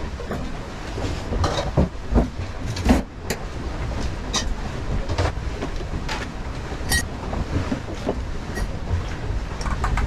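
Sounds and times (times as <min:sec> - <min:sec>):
low rumble of hull in water: 0:00.0 - 0:10.0.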